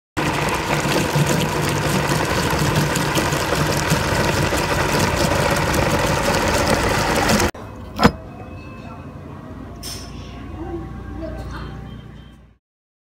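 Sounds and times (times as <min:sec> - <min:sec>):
meat grinder motor humming: 0:00.2 - 0:07.5.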